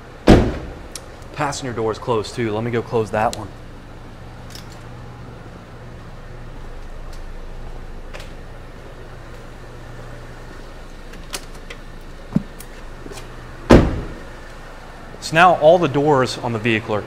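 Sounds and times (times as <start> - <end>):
van door slamming shut: 0.2 - 0.9, 13.7 - 14.3.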